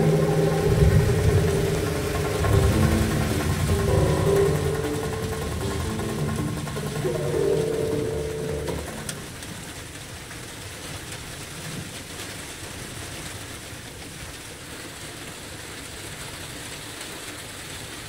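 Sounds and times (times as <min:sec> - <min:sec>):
steady hiss: 0:00.0 - 0:09.9.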